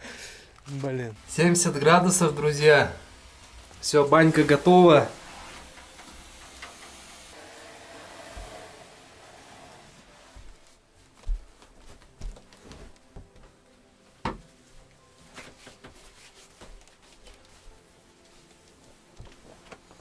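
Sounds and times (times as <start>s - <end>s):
things being handled and moved: 0.3s - 2.5s, 10.0s - 20.0s.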